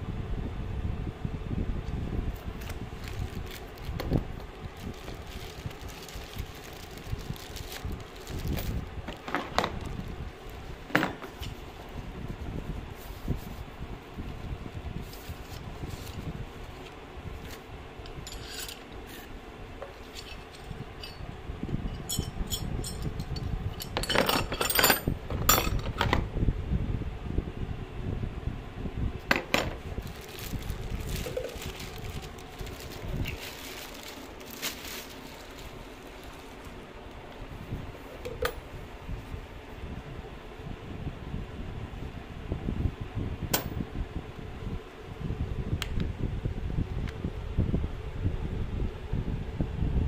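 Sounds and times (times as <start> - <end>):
low handling noise: 1.6 - 26.3, 29.2 - 39.4
plastic wrapping crinkling: 2.3 - 11.9, 29.8 - 37.4
metal bits clinking: 18.2 - 18.9, 20.0 - 21.2, 21.9 - 25.9.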